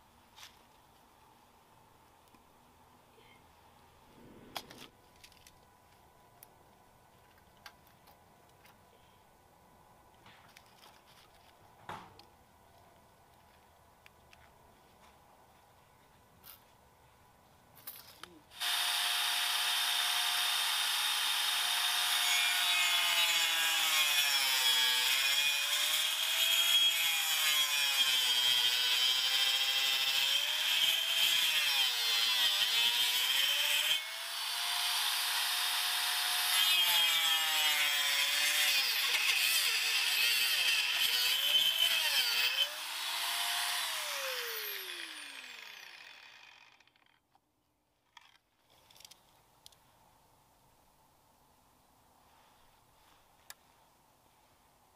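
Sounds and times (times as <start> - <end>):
angle grinder cutting wood: 18.6 - 47.1.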